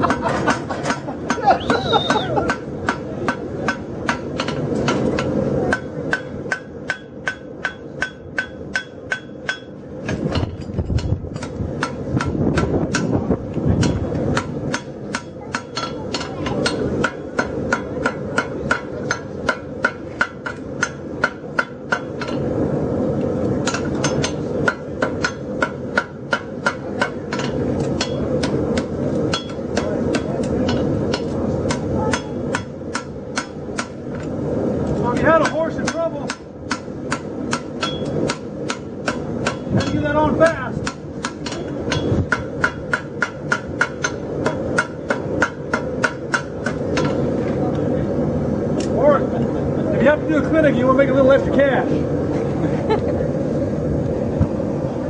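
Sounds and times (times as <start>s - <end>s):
steady low noise: 0.0s - 55.0s
hammer striking on anvil: 2.5s - 13.1s, 13.8s - 22.4s, 23.6s - 34.0s, 35.4s - 40.0s, 40.8s - 47.2s
anvil ringing: 35.4s - 40.0s.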